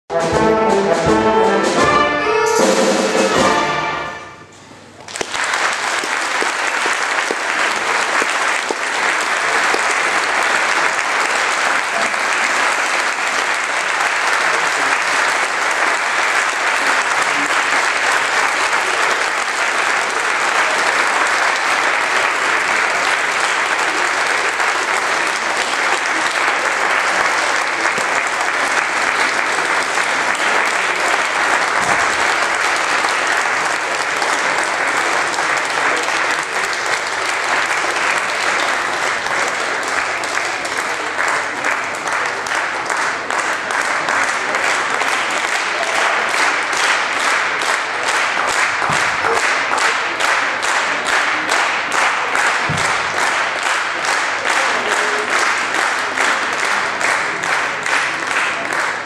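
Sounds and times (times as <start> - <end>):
wind band playing chords: 0.1 - 4.5
audience applauding: 4.8 - 59.0.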